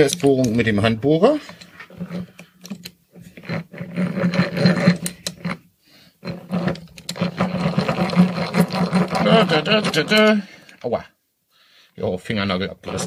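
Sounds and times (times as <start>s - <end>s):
hand drill gear rattling: 1.4s - 5.6s, 6.2s - 10.4s.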